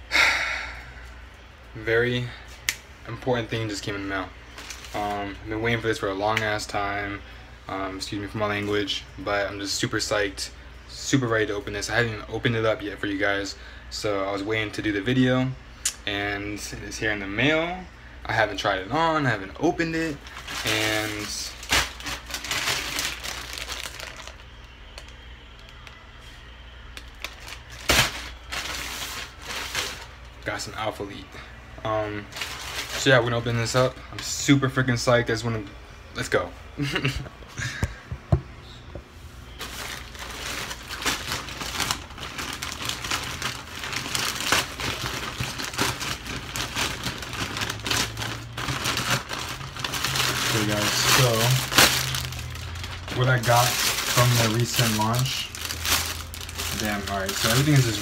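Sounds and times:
plastic bag crinkling: 3.6s - 5.8s, 18.4s - 26.0s, 27.0s - 30.9s, 32.2s - 33.8s, 39.5s - 58.0s.

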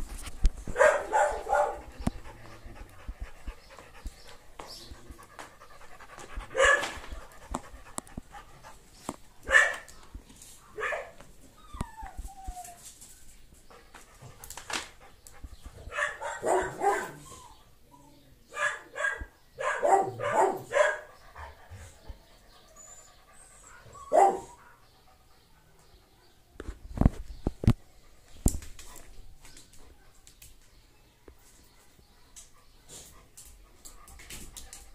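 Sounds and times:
dog barking: 0.8s - 1.8s, 6.6s - 7.0s, 9.5s - 9.9s, 15.9s - 17.2s, 18.5s - 21.1s, 24.1s - 24.6s.

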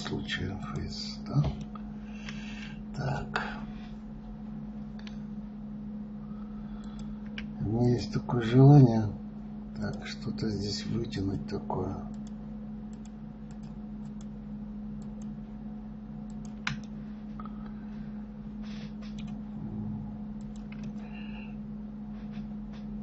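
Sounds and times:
steady low hum: 0.0s - 23.0s
keyboard and mouse clicks: 12.1s - 14.4s, 16.3s - 16.9s, 19.0s - 19.4s, 20.4s - 21.0s.

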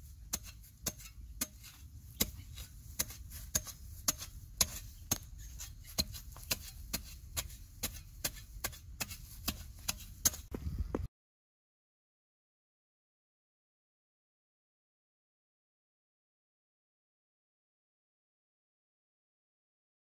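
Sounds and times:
digging bar striking hard soil: 0.0s - 11.1s.

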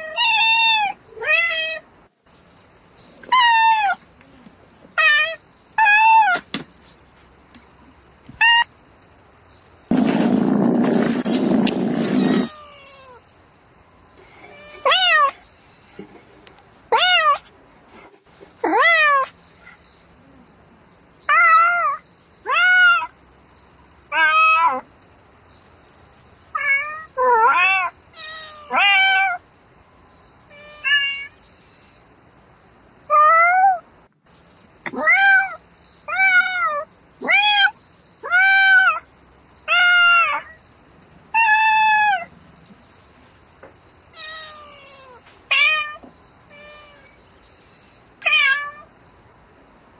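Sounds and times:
cat meowing: 0.0s - 1.8s, 3.2s - 4.0s, 8.4s - 8.7s, 12.0s - 13.2s, 14.4s - 15.4s, 16.9s - 17.4s, 18.6s - 19.3s, 21.3s - 23.1s, 26.5s - 29.4s, 30.5s - 31.4s, 33.1s - 33.8s, 34.9s - 39.1s, 39.7s - 40.6s, 41.3s - 42.3s, 44.1s - 47.2s, 48.2s - 48.9s.

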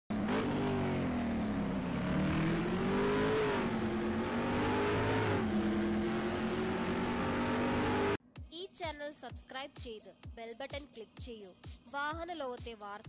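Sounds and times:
car engine revving: 0.1s - 8.2s.

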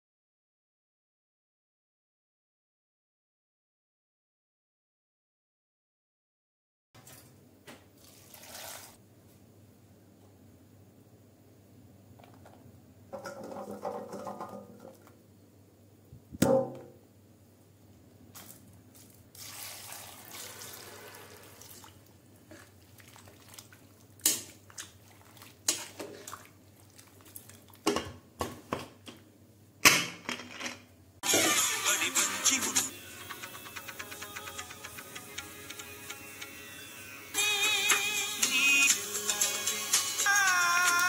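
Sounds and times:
water pouring into a pot: 8.0s - 9.0s, 19.3s - 27.9s
sharp knock: 16.4s - 17.0s.

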